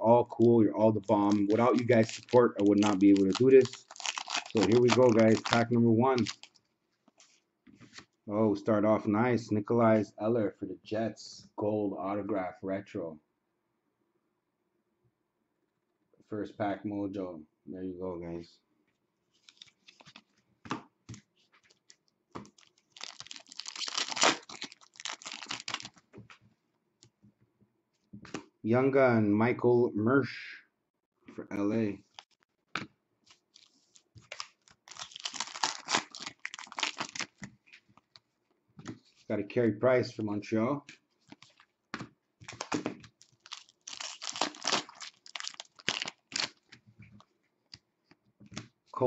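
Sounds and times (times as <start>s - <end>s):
cards rustling and sliding: 1.1s - 6.5s, 42.4s - 46.5s
foil wrapper tearing and crinkling: 1.1s - 6.6s, 19.4s - 20.2s, 22.5s - 26.0s, 33.5s - 37.5s, 42.4s - 46.8s.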